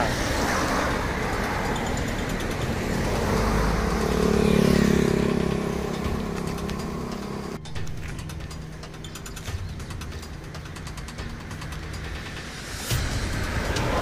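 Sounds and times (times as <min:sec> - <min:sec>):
vehicle passing close by: 0:00.0 - 0:07.6.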